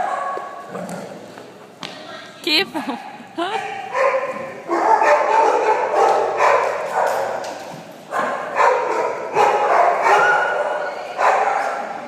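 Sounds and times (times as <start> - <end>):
dogs barking and yipping: 3.5 - 12.0.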